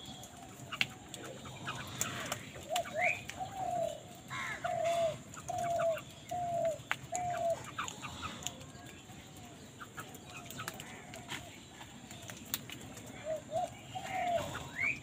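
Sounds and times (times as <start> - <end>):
crow cawing: 4.3 - 5.1.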